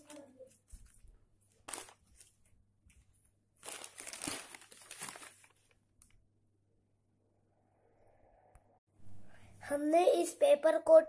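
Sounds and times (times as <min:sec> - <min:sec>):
paper and plastic crinkling: 0:00.0 - 0:06.2.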